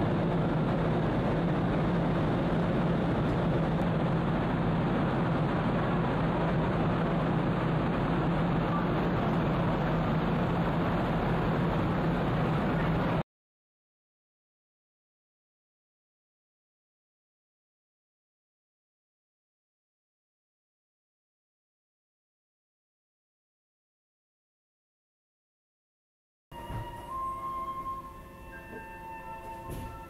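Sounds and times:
ferry engines humming: 0:00.0 - 0:13.2, 0:26.5 - 0:30.0.

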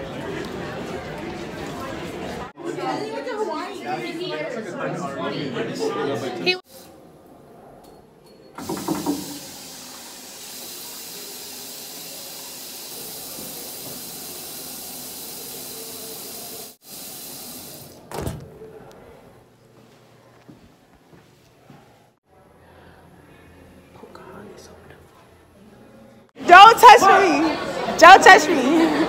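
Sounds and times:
sink tap running: 0:08.6 - 0:18.0.

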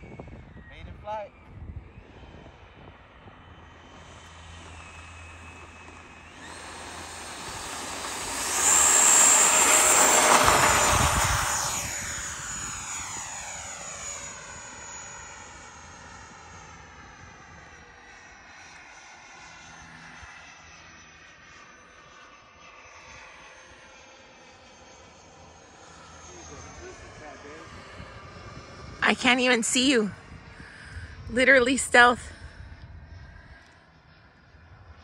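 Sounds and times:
electric ducted fans whining: 0:00.0 - 0:18.0, 0:26.3 - 0:33.7.

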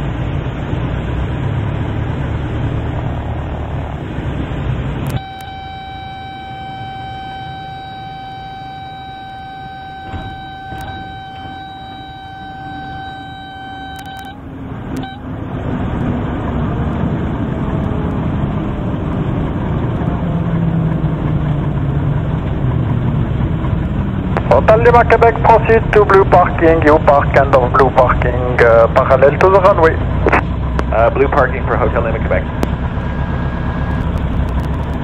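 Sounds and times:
light aircraft engine noise: 0:00.0 - 0:35.0
steady high tone: 0:05.1 - 0:15.3
clicks: 0:10.0 - 0:11.2, 0:13.8 - 0:15.2.

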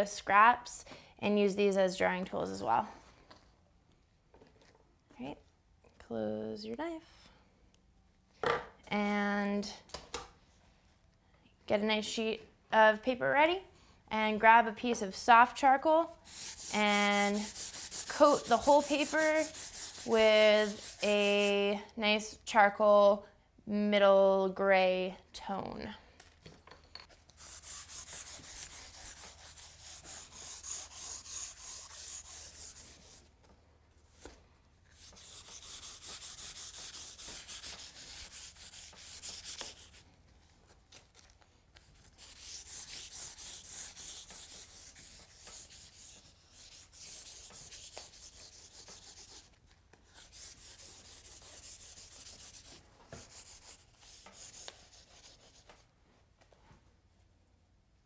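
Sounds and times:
charcoal rubbing on paper: 0:16.2 - 0:21.6, 0:27.4 - 0:33.3, 0:34.9 - 0:40.1, 0:42.0 - 0:55.8.

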